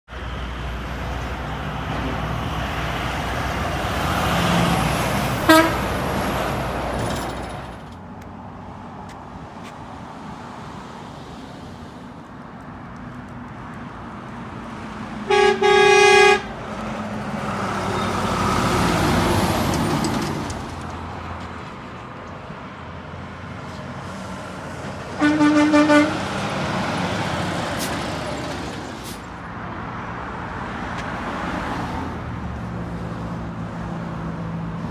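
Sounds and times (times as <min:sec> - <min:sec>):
traffic passing: 0:00.1 - 0:34.9
truck air horn blasts: 0:05.4 - 0:05.9, 0:15.2 - 0:16.6, 0:25.2 - 0:26.3.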